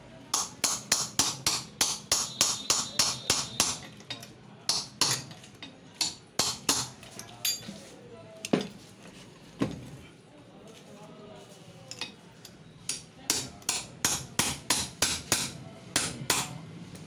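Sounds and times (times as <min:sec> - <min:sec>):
hammer tapping metal punch: 0:00.3 - 0:05.4, 0:12.9 - 0:16.6.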